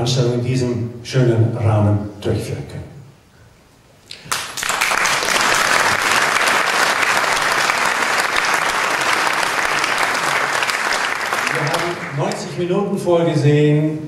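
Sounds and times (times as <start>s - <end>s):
crowd applauding: 4.1s - 12.7s.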